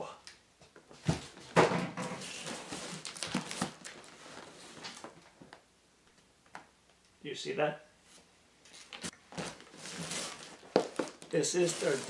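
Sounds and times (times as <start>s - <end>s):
cardboard boxes rustling: 2.2s - 5.2s, 8.8s - 12.0s.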